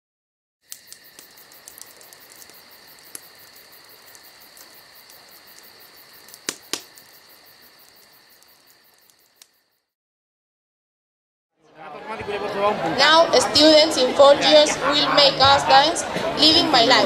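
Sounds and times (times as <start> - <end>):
crackling ticks: 0.7 - 9.7
sharp clicks: 6.3 - 7.2.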